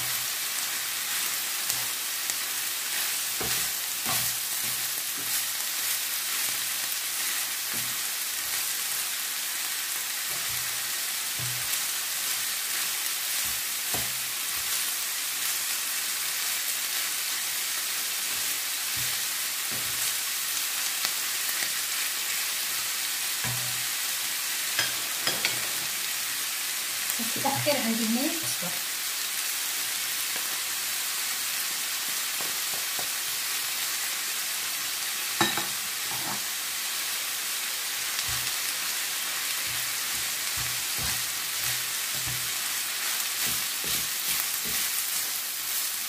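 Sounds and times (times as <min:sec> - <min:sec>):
meat sizzling in a frying pan: 0:00.0 - 0:46.0
wooden spatula scraping a pan: 0:39.6 - 0:45.4.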